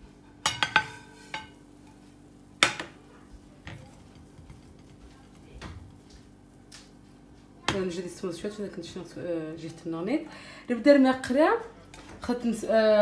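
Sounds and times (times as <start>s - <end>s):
steady low hum: 0.0s - 13.0s
pan and plate knocking: 0.4s - 1.6s, 2.6s - 3.0s.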